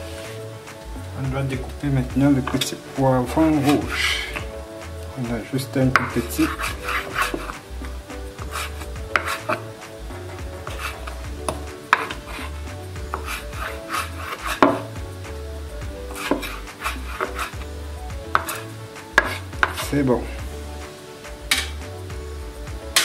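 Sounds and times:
knife chopping on wooden board: 8.4 - 9.7, 13.1 - 14.9, 18.3 - 19.8.

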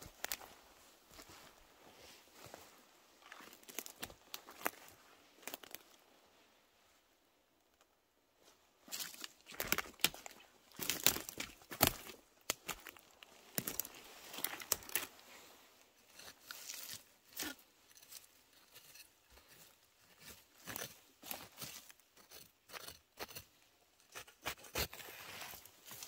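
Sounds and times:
dry leaf litter crunching: 8.9 - 15.2.

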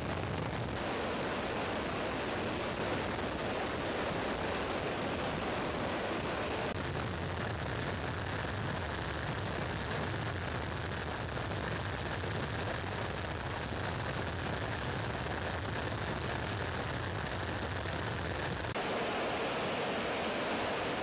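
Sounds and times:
rush of airflow: 0.8 - 6.8, 18.7 - 21.0
turboprop engines droning: 18.8 - 21.0.

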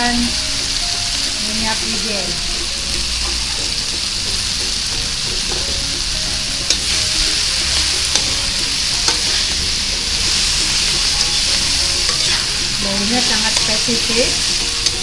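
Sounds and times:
food sizzling in a wok: 0.0 - 15.0
metal spatula clicking on pan: 6.6 - 7.0, 8.0 - 8.4, 10.8 - 15.0.

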